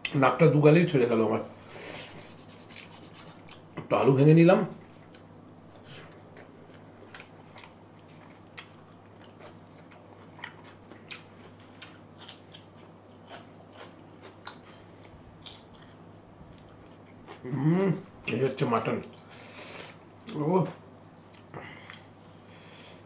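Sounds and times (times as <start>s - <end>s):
faint steady hum: 0.0s - 23.0s
person chewing food: 2.1s - 3.8s, 4.8s - 18.3s, 19.0s - 22.2s.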